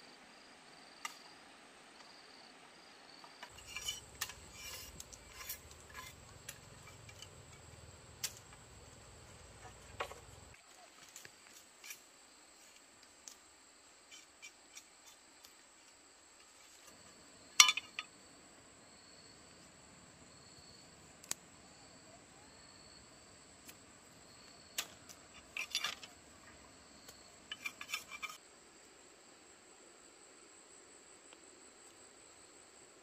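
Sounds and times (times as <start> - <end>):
insects trilling: 2.0 - 32.9
knife cracking bamboo strips: 3.5 - 8.7.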